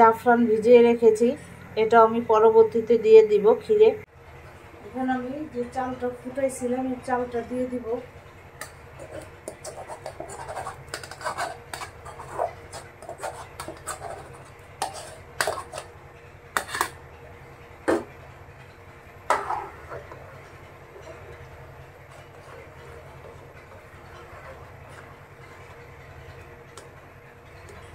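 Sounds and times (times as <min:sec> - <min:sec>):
metal spoon scraping metal pot: 0:09.0 - 0:15.9, 0:16.6 - 0:17.0
pot clanking: 0:09.0 - 0:17.0, 0:19.2 - 0:25.7.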